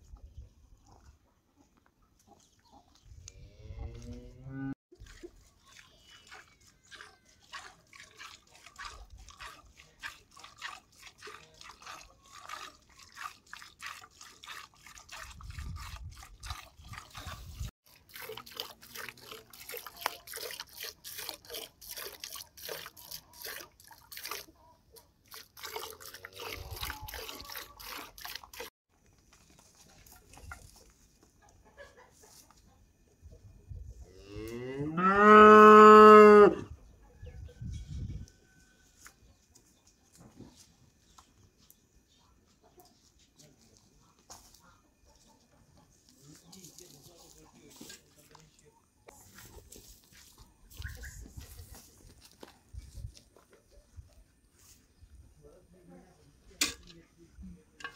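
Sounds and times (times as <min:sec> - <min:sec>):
milk squirting into metal pail: 0:06.2 - 0:24.5, 0:25.2 - 0:28.7.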